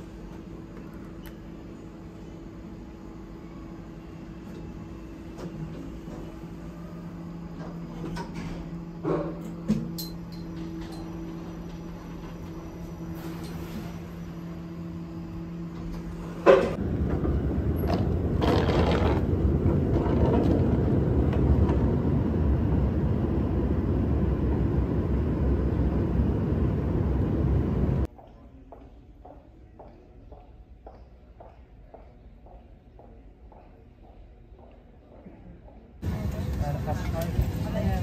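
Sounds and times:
lift electrical hum: 0:00.0 - 0:28.2
moving walkway rumbling: 0:15.5 - 0:28.1.

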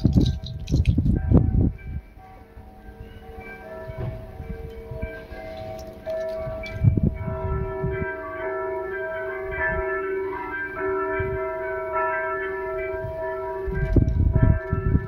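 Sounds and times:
low rumbling thumps: 0:00.0 - 0:02.1, 0:06.4 - 0:08.1, 0:13.7 - 0:15.0
bell-like chiming tones: 0:01.2 - 0:15.0.

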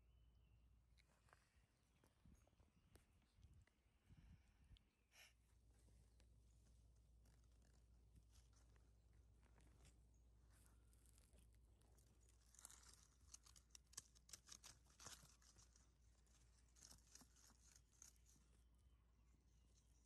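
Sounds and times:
paws crackling on dry leaves: 0:07.0 - 0:18.5.

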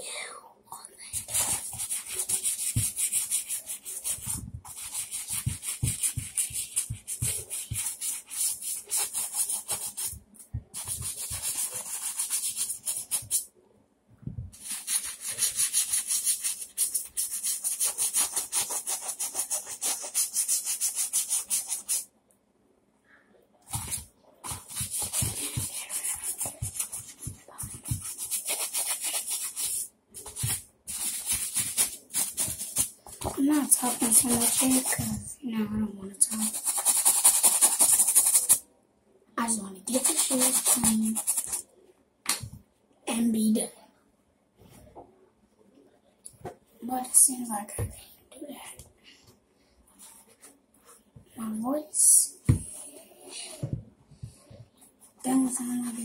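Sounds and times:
brush scrubbing a sneaker: 0:01.2 - 0:13.4, 0:14.6 - 0:22.0, 0:23.7 - 0:35.3, 0:36.3 - 0:38.6, 0:39.9 - 0:41.6.

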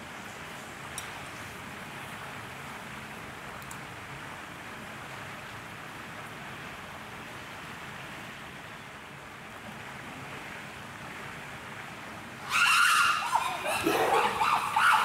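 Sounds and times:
chimpanzees screaming: 0:12.4 - 0:15.0.

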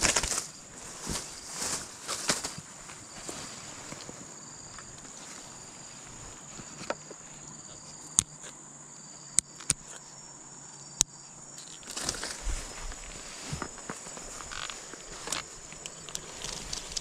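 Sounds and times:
rustling handling noise: 0:00.0 - 0:07.5, 0:11.6 - 0:17.0
insects chirring: 0:00.0 - 0:17.0
sharp clicks: 0:09.3 - 0:10.0.

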